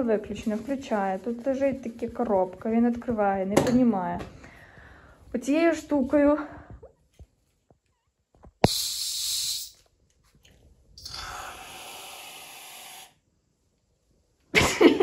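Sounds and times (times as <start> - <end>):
aerosol foam can hissing: 8.6 - 9.9, 11.0 - 13.2.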